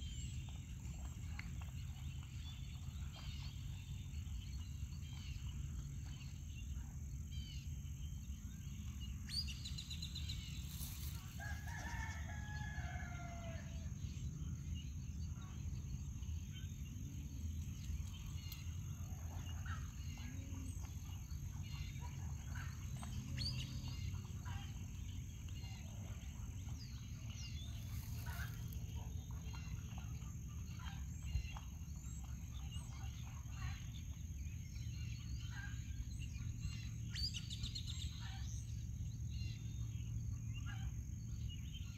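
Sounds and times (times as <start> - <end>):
low background rumble: 0.0 - 41.9
distant rooster crowing: 11.4 - 13.9.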